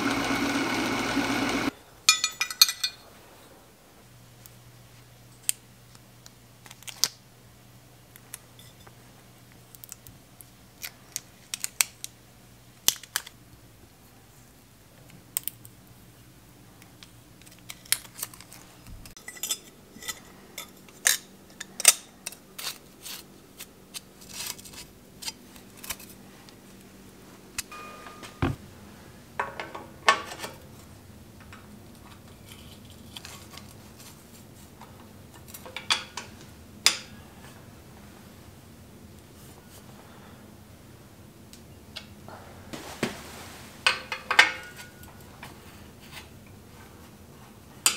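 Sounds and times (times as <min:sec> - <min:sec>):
metal parts clicking and clinking: 0:02.1 - 0:03.0
short metallic ringing note: 0:27.7 - 0:28.6.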